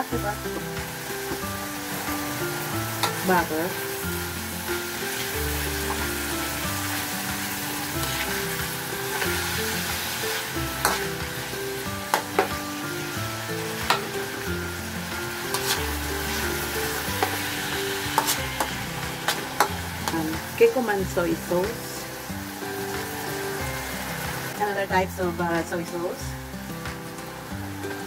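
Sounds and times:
vegetables sizzling in a wok: 0:00.0 - 0:28.0.

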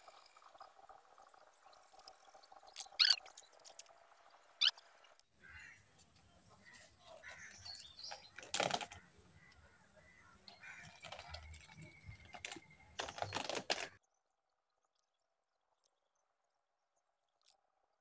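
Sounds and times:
lead sinkers clicking together: 0:07.4 - 0:09.6, 0:10.4 - 0:14.0.

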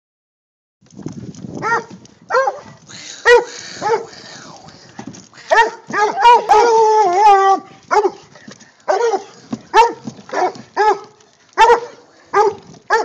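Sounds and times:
dogs barking sharply: 0:01.6 - 0:04.2, 0:05.4 - 0:08.3, 0:08.9 - 0:13.0
dogs baying: 0:01.6 - 0:04.4, 0:05.4 - 0:13.0.

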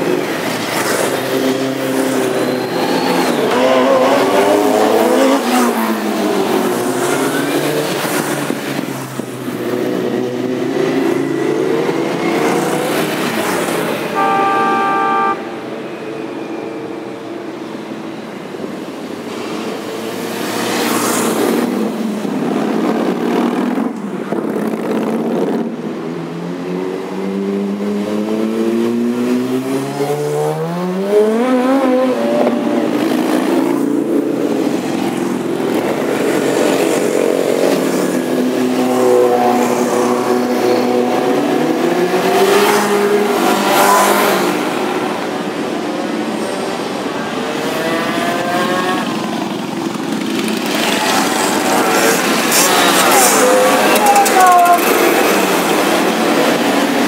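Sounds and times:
horn: 0:14.1 - 0:15.6.

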